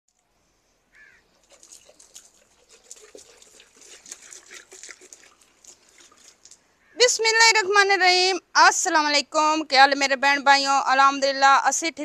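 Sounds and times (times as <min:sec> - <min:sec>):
water spattering on earthen floor: 0:01.4 - 0:06.6.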